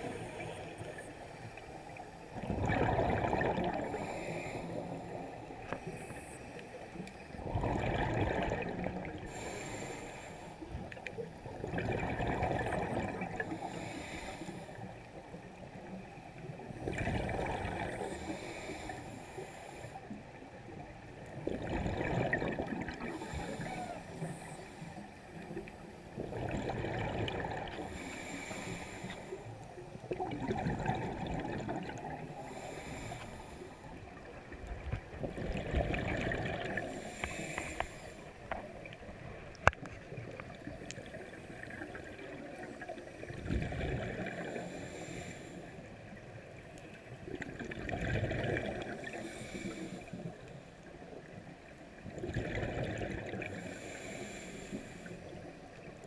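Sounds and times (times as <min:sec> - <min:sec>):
exhaled bubbles: 0:02.3 - 0:05.2, 0:07.3 - 0:09.8, 0:10.9 - 0:13.8, 0:16.7 - 0:18.5, 0:21.3 - 0:24.4, 0:25.5 - 0:28.2, 0:30.0 - 0:33.1, 0:34.2 - 0:37.9, 0:38.5 - 0:44.8, 0:47.3 - 0:49.6, 0:52.0 - 0:54.0
scuba breathing through regulator: 0:03.8 - 0:06.6, 0:09.2 - 0:10.6, 0:13.4 - 0:14.9, 0:18.0 - 0:20.1, 0:23.0 - 0:25.2, 0:27.7 - 0:29.6, 0:32.2 - 0:33.9, 0:36.6 - 0:38.6, 0:44.3 - 0:45.9, 0:49.0 - 0:50.3, 0:53.5 - 0:55.3.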